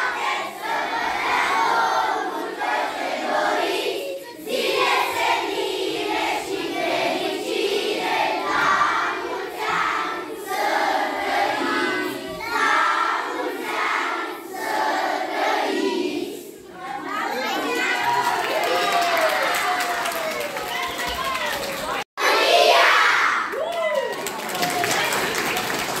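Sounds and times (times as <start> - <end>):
children singing in unison: 0.0 - 16.8, 22.2 - 23.5.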